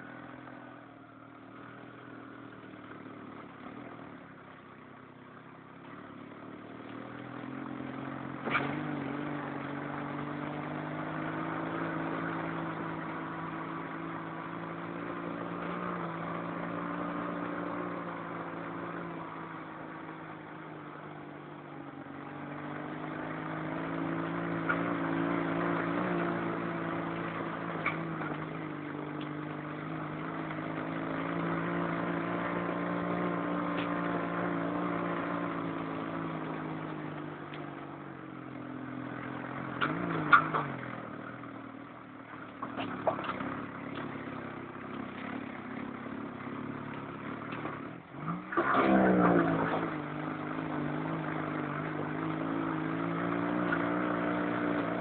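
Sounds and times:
dune buggy engine running: 0:00.0 - 0:55.0.

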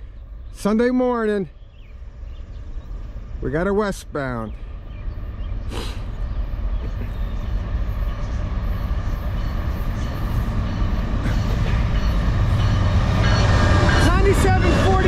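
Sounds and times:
diesel locomotive engine rumble: 0:00.0 - 0:15.0.

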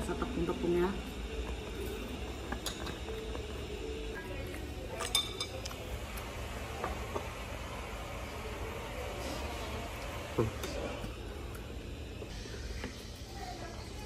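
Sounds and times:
utensils clinking on plates: 0:01.8 - 0:03.6, 0:04.2 - 0:05.9.

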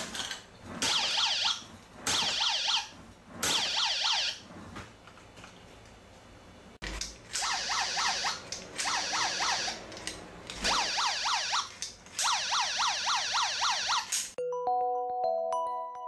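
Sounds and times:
warbling alarm siren: 0:00.8 - 0:04.4, 0:07.4 - 0:09.8, 0:10.6 - 0:14.1.

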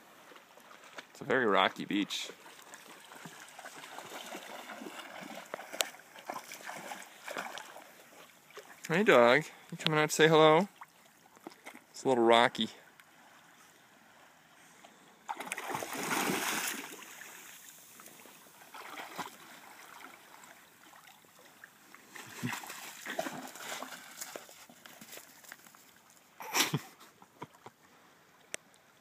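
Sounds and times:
dog splashing through water: 0:02.4 - 0:08.8, 0:15.3 - 0:17.6, 0:18.6 - 0:21.2, 0:22.2 - 0:25.6.

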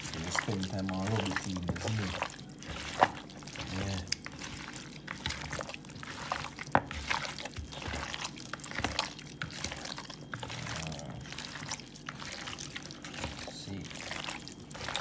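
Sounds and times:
hand squishing raw chicken: 0:00.0 - 0:15.0.

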